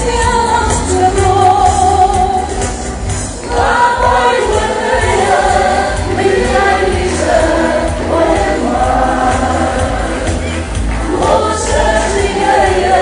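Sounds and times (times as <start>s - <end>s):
music with a steady beat: 0.0s - 13.0s
group of voices singing: 3.3s - 13.0s.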